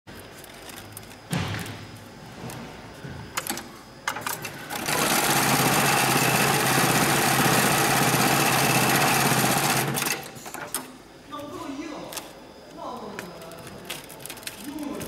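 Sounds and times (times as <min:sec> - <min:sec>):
sewing machine stitching: 0:04.4 - 0:10.3.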